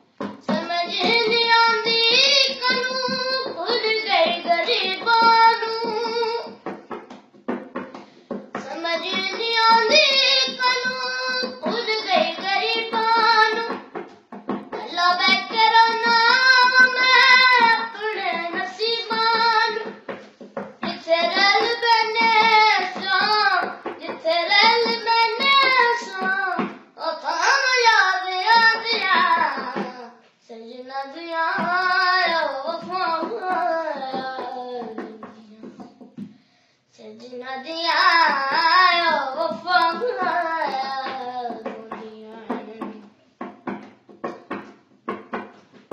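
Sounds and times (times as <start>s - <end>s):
boy singing alone: 0.2s - 6.9s, 8.5s - 20.1s, 20.7s - 36.1s, 37.0s - 43.2s.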